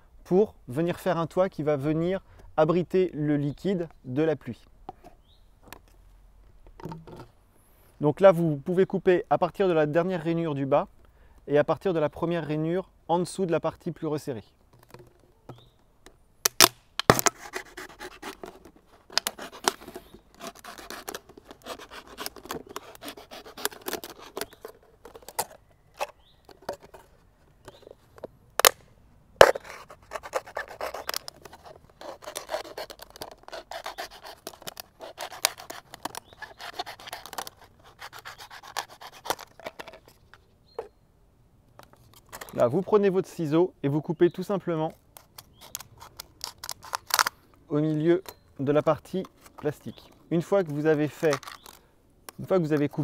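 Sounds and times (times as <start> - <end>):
knife cutting plastic bottle: 16.5 - 27.9, 29.4 - 40.1, 45.1 - 47.3
plastic cracking: 30.3 - 37.6, 45.2 - 47.4.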